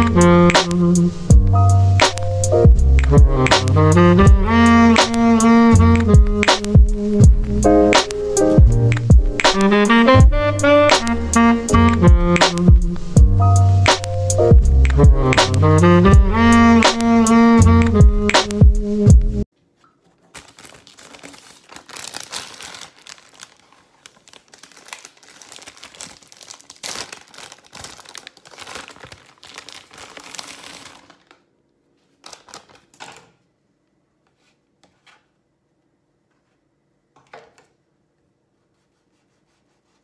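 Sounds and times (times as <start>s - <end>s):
plastic wrapping crinkling: 6.6s - 9.7s, 19.7s - 33.2s.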